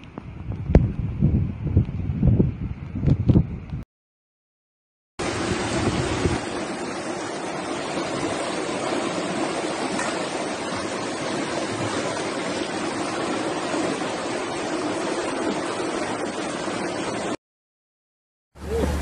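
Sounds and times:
floodwater rushing: 0:05.2 - 0:17.4, 0:18.6 - 0:19.0.

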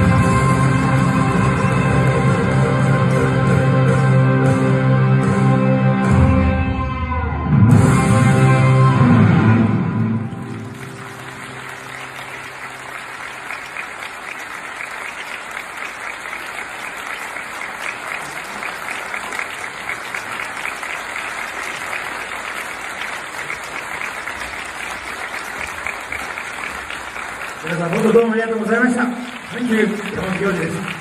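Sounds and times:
audience applauding: 0:10.0 - 0:31.0.

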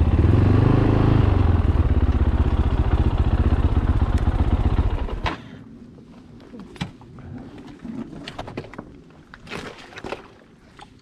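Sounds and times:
motorcycle engine idling: 0:01.3 - 0:05.2.

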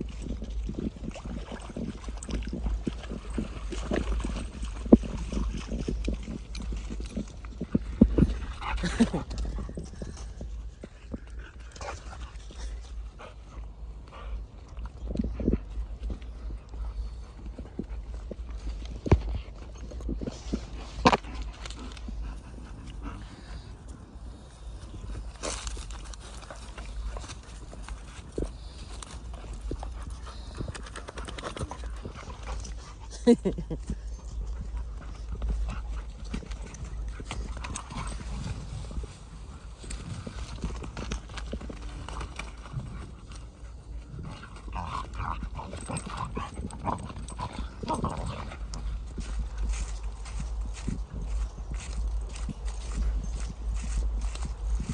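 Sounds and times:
wind rumble on microphone: 0:00.0 - 0:54.9
footsteps crunching on dry stalks: 0:15.2 - 0:30.7, 0:34.3 - 0:54.9.

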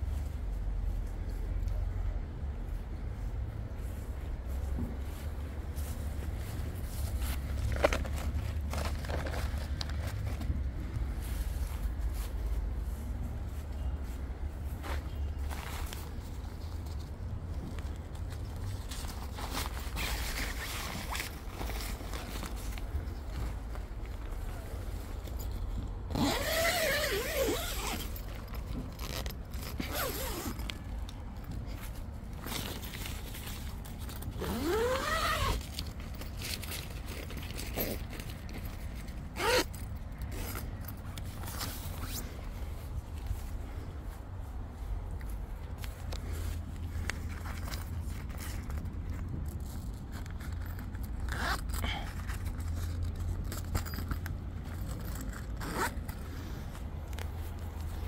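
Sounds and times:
tent zipper pulled: 0:26.1 - 0:28.3, 0:28.9 - 0:30.9, 0:34.2 - 0:38.5, 0:39.3 - 0:40.8, 0:41.4 - 0:42.4, 0:50.1 - 0:54.0, 0:54.8 - 0:56.6.

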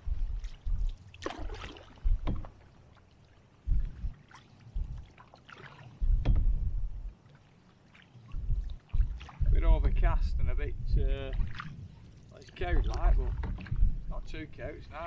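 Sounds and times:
dull low thumps: 0:00.0 - 0:02.8, 0:03.6 - 0:05.2, 0:05.9 - 0:07.2, 0:08.2 - 0:15.0
paddle splashing in water: 0:00.0 - 0:06.2, 0:07.1 - 0:09.5, 0:11.3 - 0:14.0.

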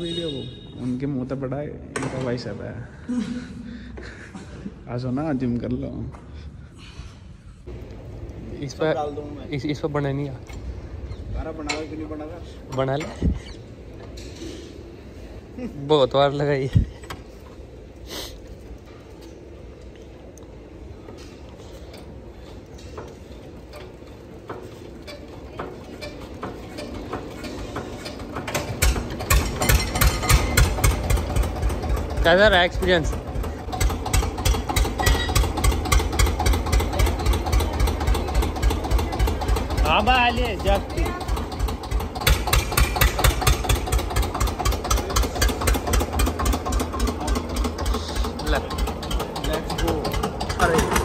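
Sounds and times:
diesel engine knocking: 0:25.6 - 0:51.0.

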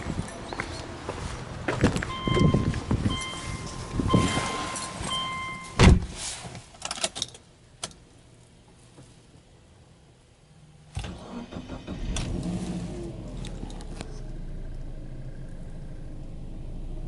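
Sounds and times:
car warning chime beeping: 0:02.1 - 0:05.8
car door shutting with thud: 0:05.7 - 0:06.2.

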